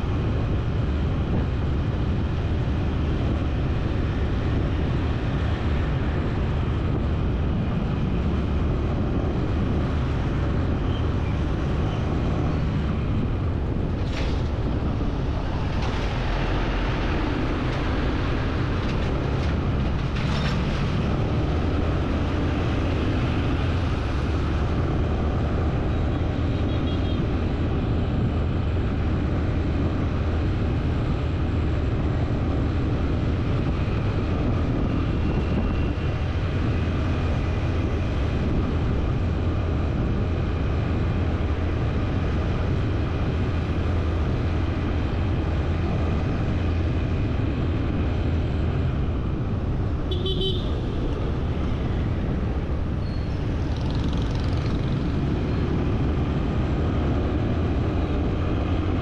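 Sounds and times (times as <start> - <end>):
road traffic engine rumble: 0.0 - 59.0
vehicle horn toot: 50.1 - 50.8.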